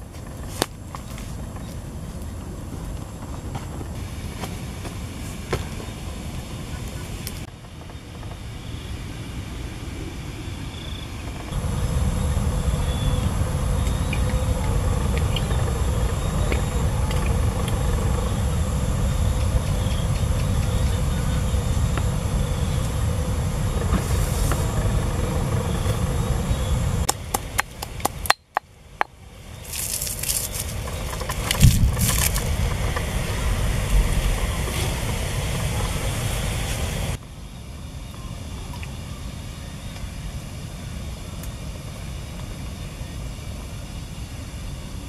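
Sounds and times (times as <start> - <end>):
faint high whine: 0.0 - 45.0
low rumble: 8.6 - 28.2, 29.2 - 37.2.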